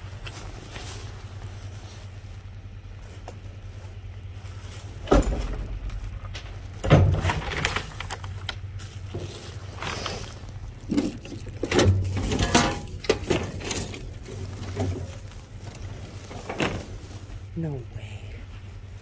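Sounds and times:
plastic and wood crackling: 0.0s - 19.0s
steady low hum: 0.0s - 19.0s
loud thud: 5.0s - 6.2s.

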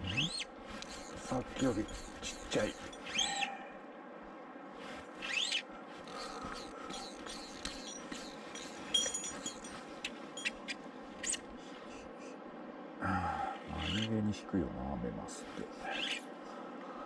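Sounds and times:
fly reel clicking and buzzing: 0.8s - 3.2s, 6.1s - 9.7s.

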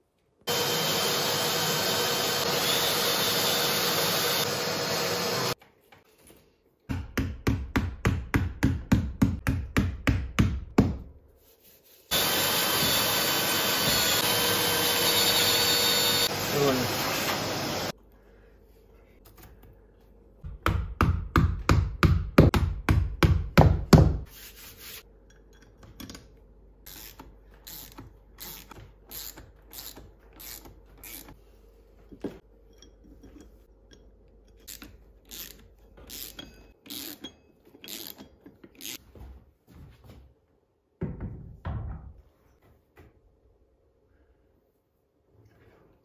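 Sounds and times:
hand tool rasping: 34.5s - 39.0s.

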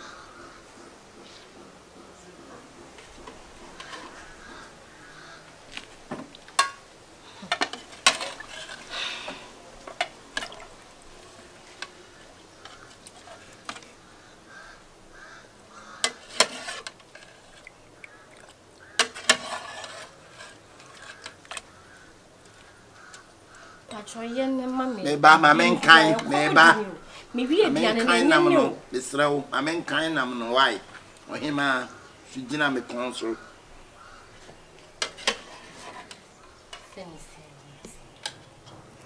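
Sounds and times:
stirring in a pot: 1.1s - 24.2s, 29.9s - 37.1s
metal pot and utensils clinking: 6.5s - 6.8s, 7.4s - 8.9s, 16.0s - 17.7s, 18.4s - 21.6s, 35.0s - 37.0s.

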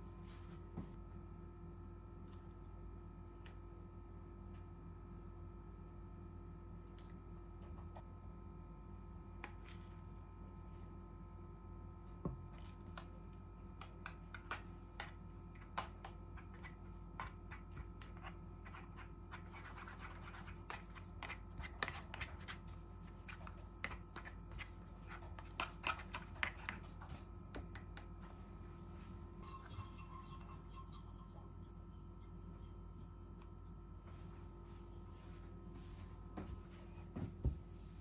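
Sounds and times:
spoon scraping plastic tray: 14.0s - 27.2s.

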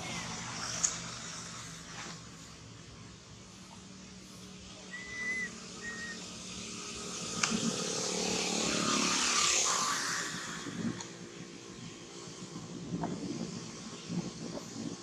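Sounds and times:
vehicle passing by: 0.0s - 14.9s
high whistle-like chirps: 4.9s - 6.2s.

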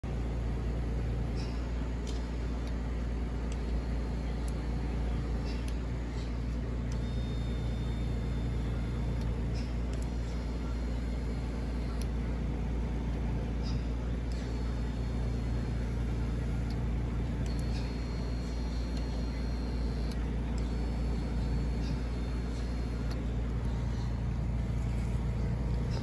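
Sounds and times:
recliner motor humming: 0.0s - 26.0s
light mechanism clicks: 1.3s - 11.0s, 16.4s - 26.0s.

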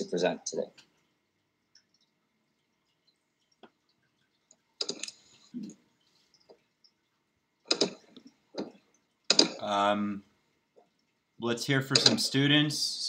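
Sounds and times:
sharp clicks: 4.8s - 5.2s, 7.7s - 9.7s, 11.9s - 12.3s.

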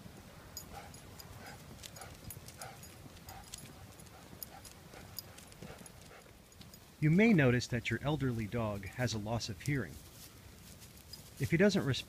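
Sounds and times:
dog footsteps with claw ticks: 0.1s - 7.0s, 9.6s - 11.4s.

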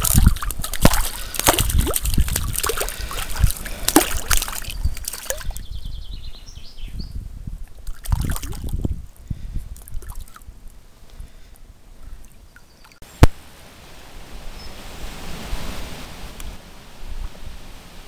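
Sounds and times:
flowing water rushing: 0.0s - 5.6s
water splashing and sloshing: 0.0s - 5.6s, 7.6s - 8.9s.

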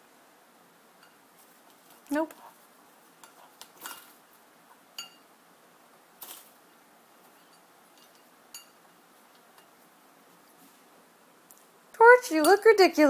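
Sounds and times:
clinks against ceramic bowl: 5.0s - 5.3s, 7.5s - 8.8s.

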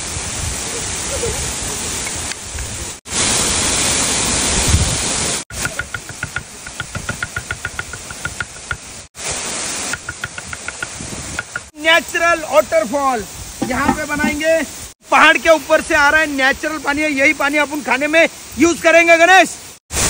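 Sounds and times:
waterfall rushing: 0.0s - 20.0s
cleaver chopping on wooden board: 5.5s - 8.9s, 9.9s - 11.7s, 13.6s - 14.4s.

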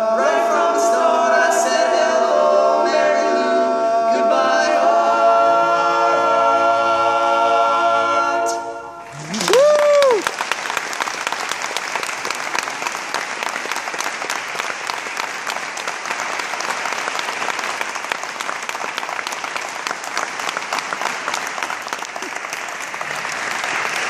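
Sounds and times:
audience applauding: 9.1s - 24.0s.

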